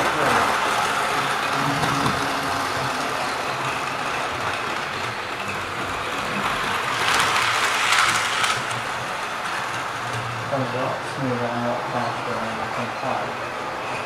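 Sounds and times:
wheels clicking over rail joints: 0.0s - 10.9s
model train whirring rumble: 0.0s - 14.0s.

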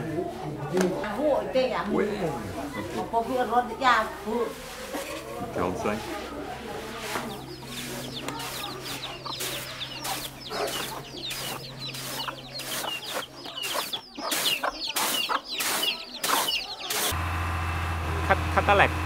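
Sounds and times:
chicks peeping: 4.5s - 17.1s
hen clucking: 4.6s - 17.1s
rice swishing in winnowing tray: 5.8s - 17.1s.

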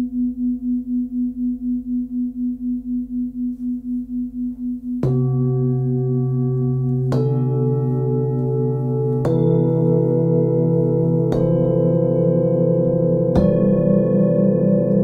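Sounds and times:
felt mallet striking bowls: 4.9s - 15.0s
singing bowls ringing: 5.0s - 15.0s.

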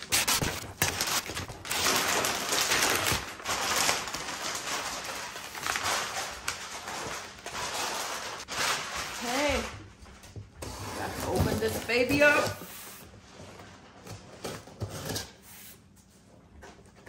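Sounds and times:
wrapping paper tearing: 0.0s - 9.7s.

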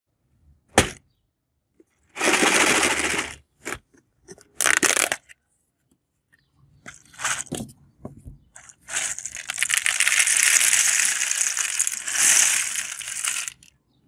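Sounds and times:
dry pieces rattling in tub: 2.2s - 3.4s, 4.6s - 5.2s, 6.9s - 7.6s, 8.6s - 13.7s
plastic lid crackling: 4.6s - 5.2s, 8.6s - 13.7s.

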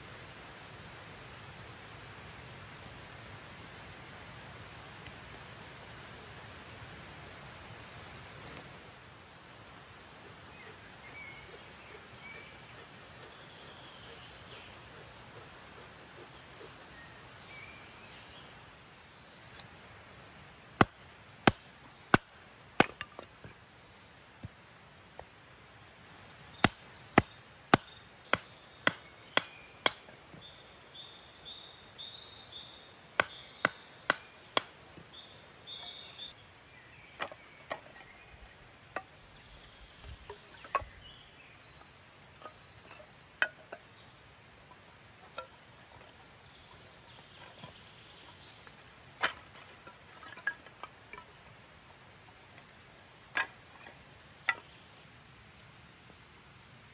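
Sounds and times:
axe chopping firewood: 20.8s - 23.2s, 26.6s - 30.1s, 33.2s - 34.8s.

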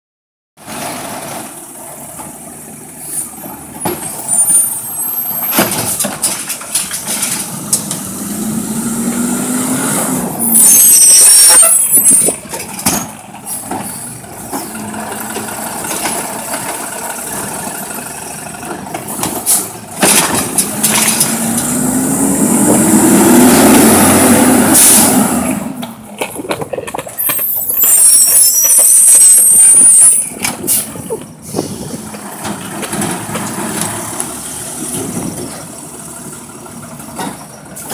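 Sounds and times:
garbage truck engine revving: 0.6s - 37.9s
cart clunking against hopper: 5.3s - 8.2s, 11.5s - 23.0s, 30.0s - 37.9s.

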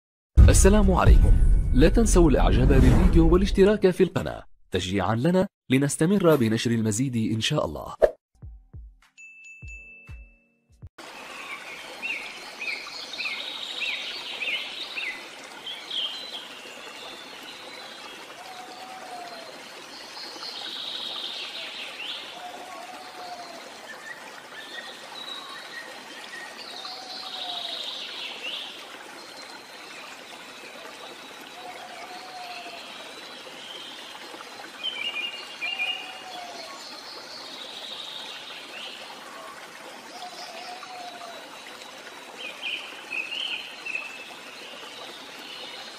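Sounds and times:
trickle of running water: 11.0s - 45.9s.

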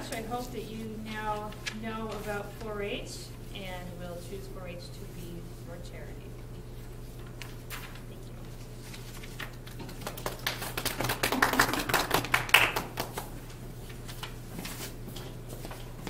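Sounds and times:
audience clapping: 9.6s - 13.4s.

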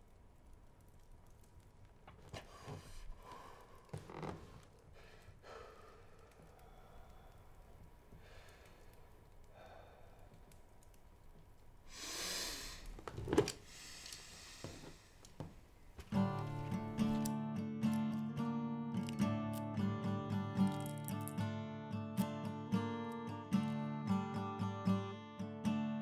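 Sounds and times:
man breathing heavily: 2.4s - 4.0s, 4.8s - 10.5s, 11.9s - 12.9s, 13.6s - 15.2s.

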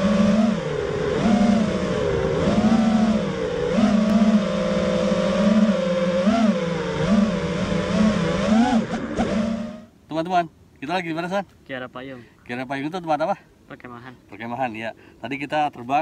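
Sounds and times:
drone motors whining: 0.0s - 10.0s.

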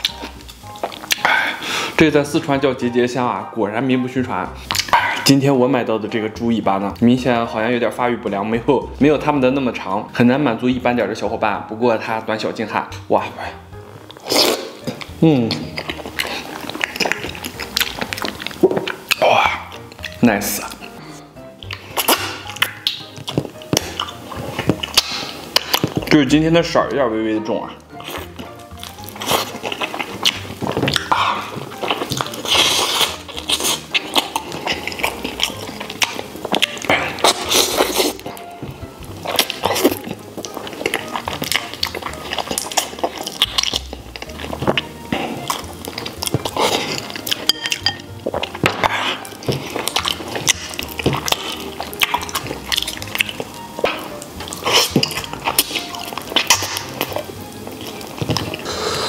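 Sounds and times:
wet biting and chewing: 0.0s - 1.6s, 4.6s - 5.4s, 14.0s - 26.1s, 27.9s - 59.0s
slurps: 14.0s - 19.4s, 57.8s - 59.0s
mouth smacking clicks: 21.7s - 24.0s.

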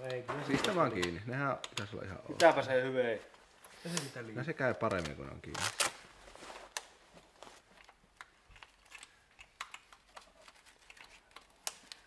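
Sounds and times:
small clicks and taps: 0.0s - 2.6s, 7.8s - 12.0s.

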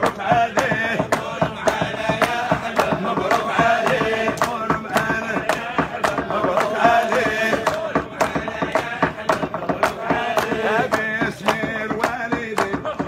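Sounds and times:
men chanting: 0.0s - 13.0s
steady percussion: 0.0s - 13.0s.

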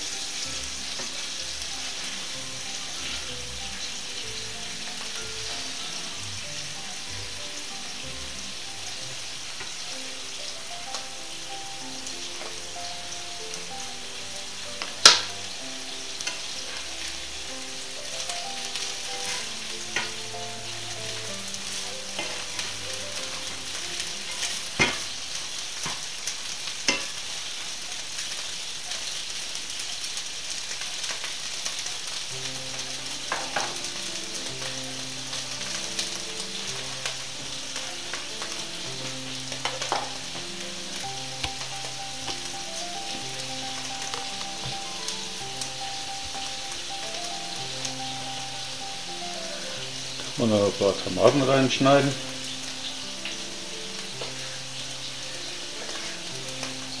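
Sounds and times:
faint background music: 0.0s - 57.0s
food sizzling in frying pans: 0.0s - 57.0s
spatula knocking and scraping pan: 22.2s - 22.7s, 24.3s - 25.2s, 26.8s - 27.3s, 33.3s - 33.8s.

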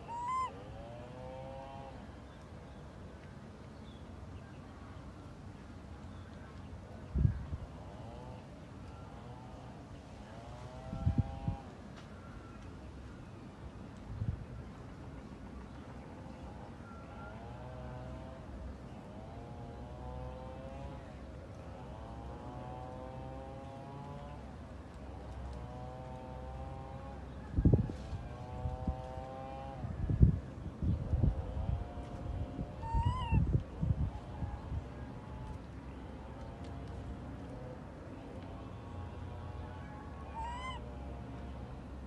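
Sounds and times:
macaque coo calls: 0.0s - 0.5s, 32.8s - 33.4s, 40.3s - 40.8s.

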